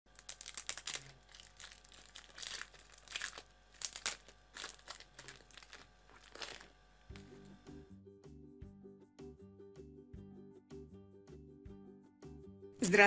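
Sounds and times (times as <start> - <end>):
plastic wrapper crinkling and tearing: 0.1 - 7.5.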